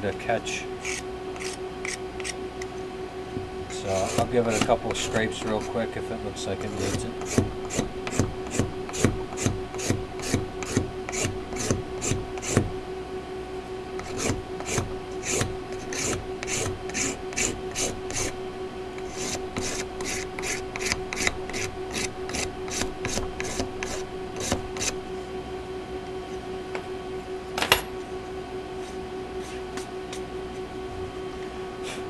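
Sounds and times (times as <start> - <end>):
steady low hum: 0.0 - 32.0
hacksaw blade scraping wood: 0.8 - 2.4, 3.8 - 5.8, 6.7 - 12.6, 14.0 - 18.4, 19.0 - 25.0.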